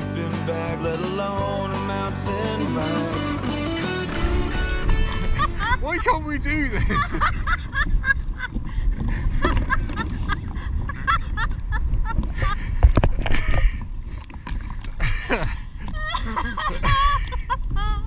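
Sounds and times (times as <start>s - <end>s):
wind buffeting microphone: 4.1s - 18.0s
person laughing in honking bursts: 4.2s - 8.3s.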